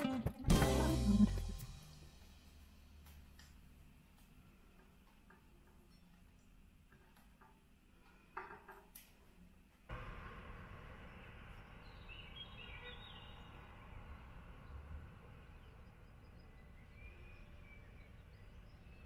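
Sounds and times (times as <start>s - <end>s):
bird chirps: 11.5s - 19.0s.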